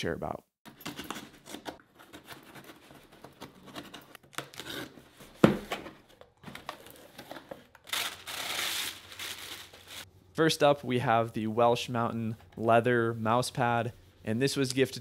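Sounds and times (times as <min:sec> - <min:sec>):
packing tape being slit: 0:07.7 - 0:10.0
tissue paper crinkling: 0:07.8 - 0:10.1.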